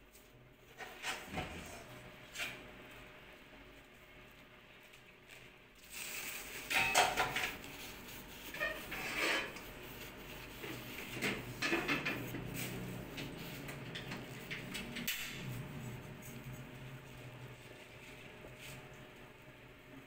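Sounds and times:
tissue scraping metal lid: 6.0 - 10.1.

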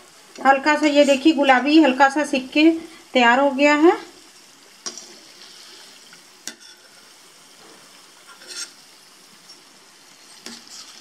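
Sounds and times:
food sizzling in hot oil: 0.0 - 11.0
steel spoon scraping a pan: 0.8 - 1.4, 4.9 - 8.9, 10.2 - 11.0.

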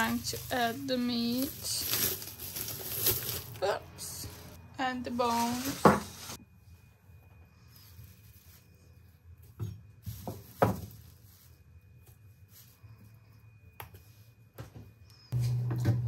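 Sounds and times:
plastic bag rustling: 0.0 - 6.4, 7.6 - 11.8.

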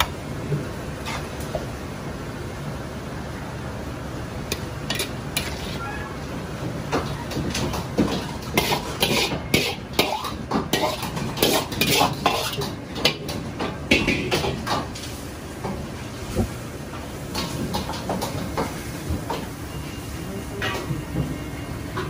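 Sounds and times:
metal ladle scraping wok: 4.5 - 6.0, 8.1 - 13.4.

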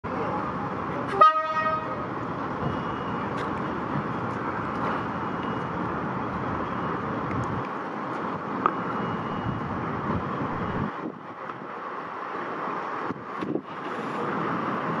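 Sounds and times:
diesel engine running: 0.0 - 15.0
train horn toot: 1.1 - 2.0.

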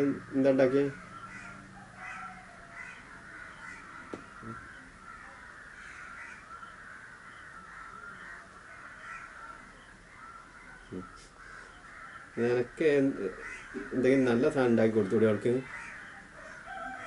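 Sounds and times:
chorus of animal calls: 0.0 - 17.0.

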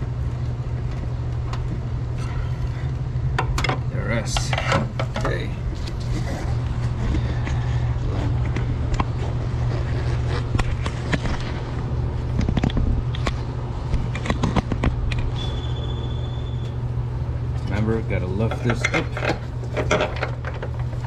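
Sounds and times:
steady low hum: 0.0 - 21.0
hand tools clicking and scraping: 18.4 - 20.7.

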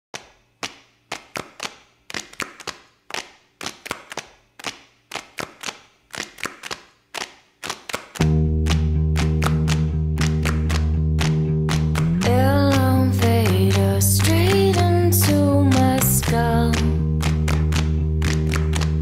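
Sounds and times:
clap-like percussive hits: 0.2 - 19.0
music with deep bass: 8.2 - 19.0.

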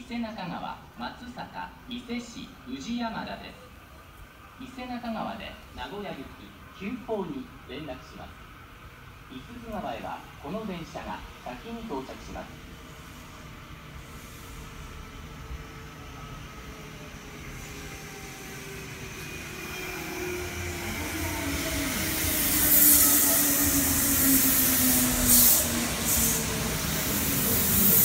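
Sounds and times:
wheels hissing on rails: 11.0 - 28.0
short hisses: 14.0 - 15.0.

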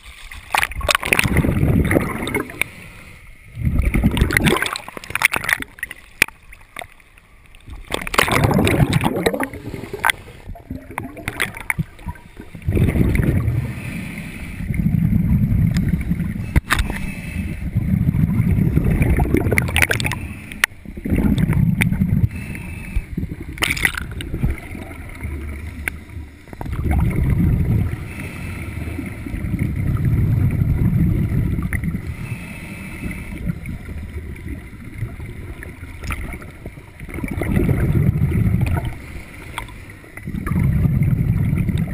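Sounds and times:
exhaled bubbles rumbling: 0.0 - 2.7, 3.5 - 6.9, 7.6 - 14.0, 14.6 - 22.4, 23.0 - 32.3, 33.0 - 41.9
diver inhaling through regulator: 8.6 - 10.5, 12.8 - 15.1, 15.9 - 18.0, 20.0 - 20.8, 22.1 - 23.4, 27.8 - 29.5, 32.0 - 33.9.

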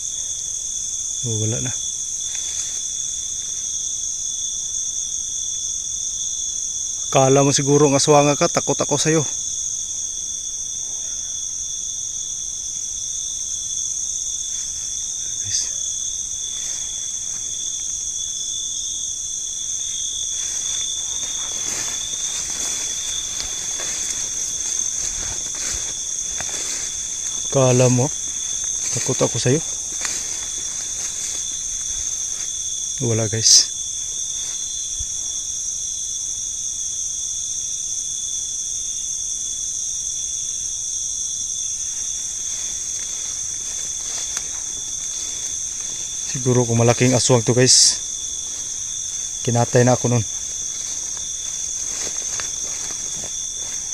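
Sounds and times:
night insects trilling: 0.0 - 53.9
faint rustles: 13.9 - 33.0, 41.7 - 53.9.

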